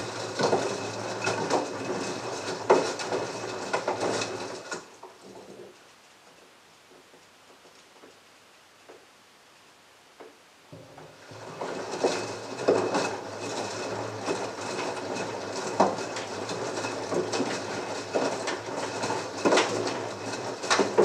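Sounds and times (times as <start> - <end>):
washing machine motor hum: 0.0 - 4.8, 10.7 - 21.0.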